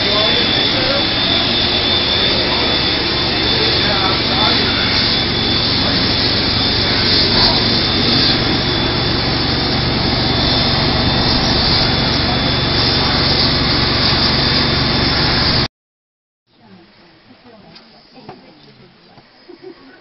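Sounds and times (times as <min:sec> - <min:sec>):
faint high whine: 0:00.0 - 0:15.7
loud steady rushing noise: 0:00.0 - 0:15.7.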